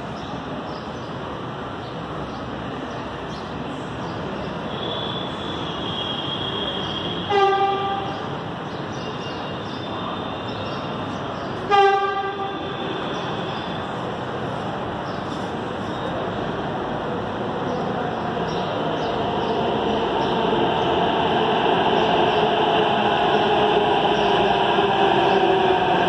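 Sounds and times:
train horn blasts: 7.2s - 8.1s, 11.7s - 12.6s.

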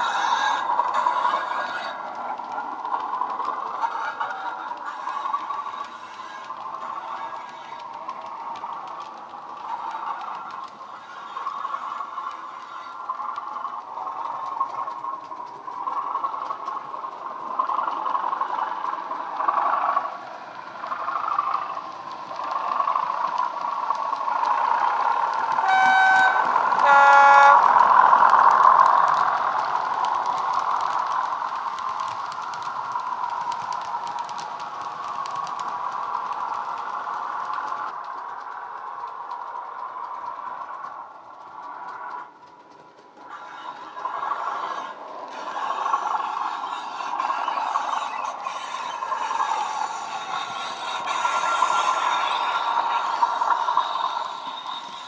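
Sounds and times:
diesel locomotive engine running: 0.0s - 55.0s
two-tone locomotive horn: 25.6s - 27.9s.

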